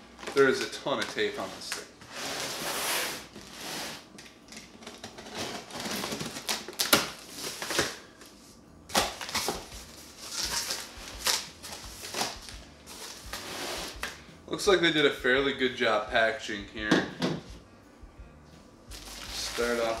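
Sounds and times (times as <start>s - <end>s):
knife slitting packing tape: 8.9s - 14.2s.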